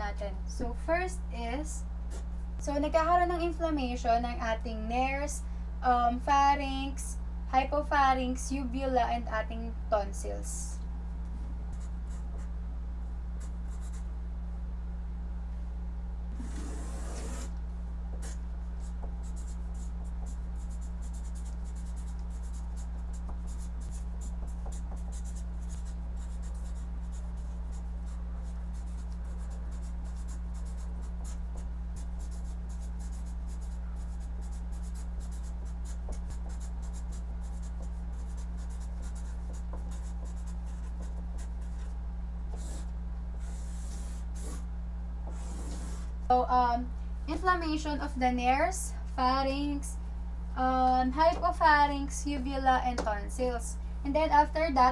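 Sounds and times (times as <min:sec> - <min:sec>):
steady low hum: 0:00.0 - 0:54.9
marker pen writing on paper: 0:16.4 - 0:17.5, 0:18.1 - 0:41.9, 0:42.5 - 0:44.7, 0:45.3 - 0:46.2.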